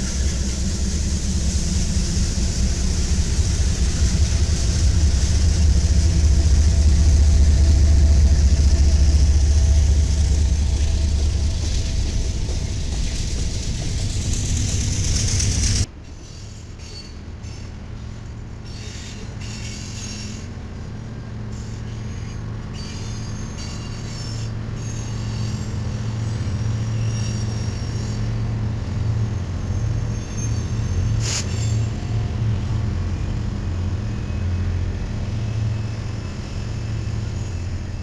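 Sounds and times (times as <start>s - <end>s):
diesel locomotive engine drone: 0.0s - 38.0s
train passing: 0.0s - 38.0s
high-pitched metal squeals: 21.6s - 28.4s, 29.3s - 32.1s.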